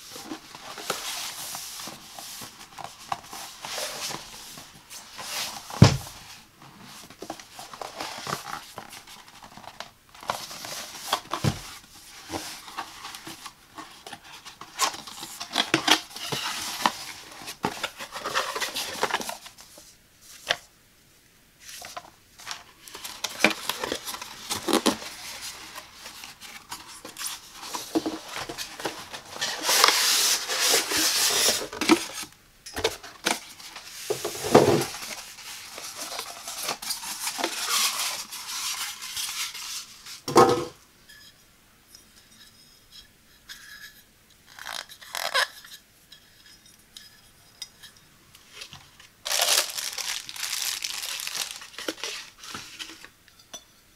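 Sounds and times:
paper manual rustling: 0:00.0 - 0:20.6, 0:21.6 - 0:40.3, 0:48.5 - 0:53.1
styrofoam block scraping: 0:22.9 - 0:32.3, 0:33.4 - 0:40.3, 0:49.2 - 0:53.1.

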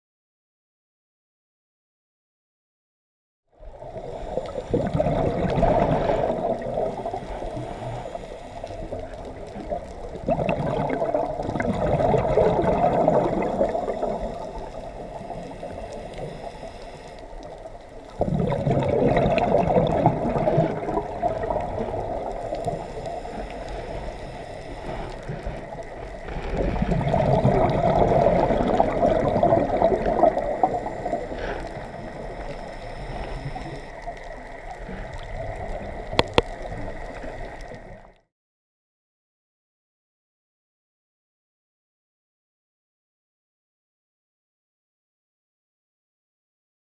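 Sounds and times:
scuba regulator bubbles gurgling: 0:03.6 - 0:38.2
regulator hiss: 0:05.9 - 0:09.6, 0:13.7 - 0:18.0, 0:21.4 - 0:26.4, 0:30.5 - 0:38.0.

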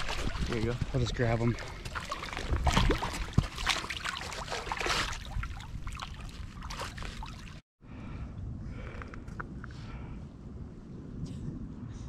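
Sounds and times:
stream water splashing: 0:00.0 - 0:07.6.

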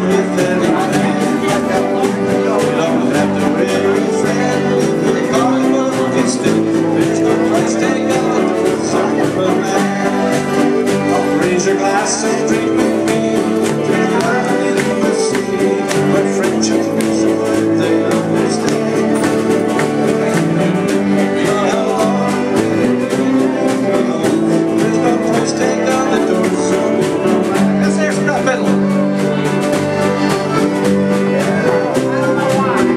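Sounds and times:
acoustic guitar: 0:00.0 - 0:32.9
button accordion: 0:00.0 - 0:32.9
man singing: 0:00.0 - 0:32.9
strummed ukulele: 0:00.0 - 0:32.9
upright double bass: 0:00.0 - 0:32.9.

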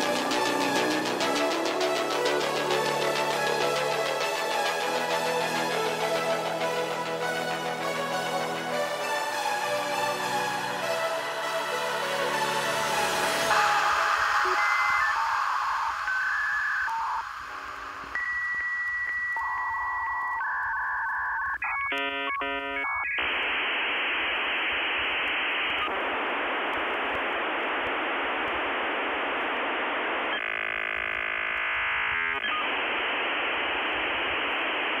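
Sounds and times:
scrambled static hiss: 0:00.0 - 0:35.0
dial-up modem handshake tones: 0:13.5 - 0:23.6.

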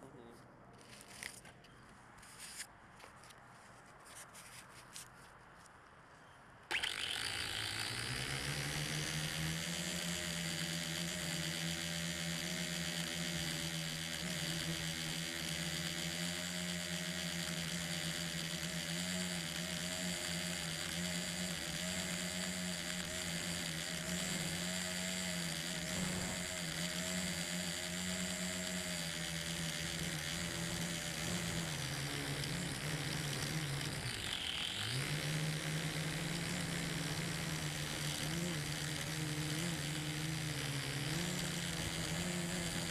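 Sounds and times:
drone propellers whining: 0:06.7 - 0:42.9.

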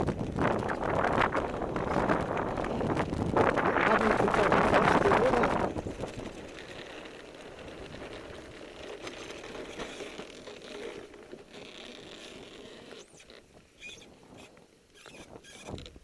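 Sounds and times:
land yacht rattling over sand: 0:00.0 - 0:13.0.

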